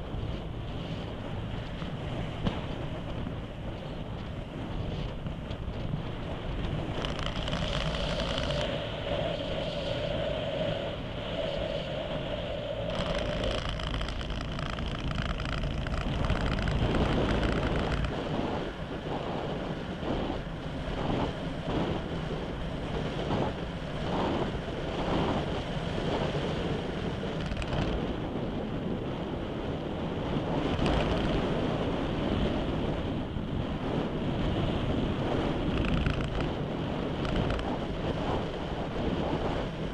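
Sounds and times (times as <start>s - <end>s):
steady whine: 0.0s - 28.4s
wind rushing over microphone: 0.0s - 39.9s.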